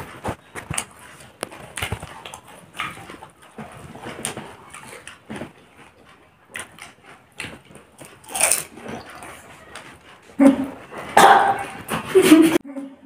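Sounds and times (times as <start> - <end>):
crisp shells crunching: 7.5 - 9.1.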